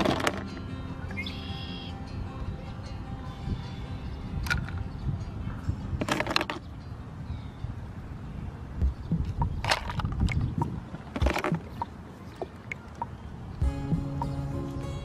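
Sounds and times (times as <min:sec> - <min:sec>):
plastic toys clattering in tub: 0:00.0 - 0:00.5, 0:06.0 - 0:06.6, 0:09.6 - 0:10.3, 0:11.0 - 0:11.8.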